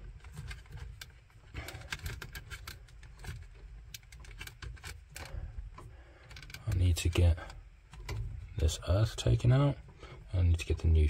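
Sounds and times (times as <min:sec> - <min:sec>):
wires and connector clicking: 0:00.0 - 0:07.2.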